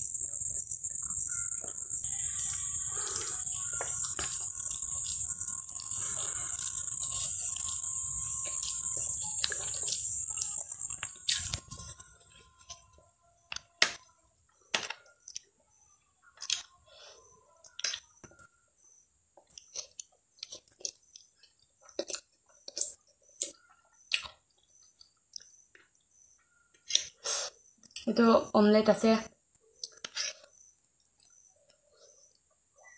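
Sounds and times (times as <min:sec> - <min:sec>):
wet chewing and mouth clicks: 0:00.4 - 0:12.9, 0:16.3 - 0:16.8, 0:19.4 - 0:26.1, 0:29.7 - 0:32.5
noodles being slurped: 0:02.8 - 0:10.1.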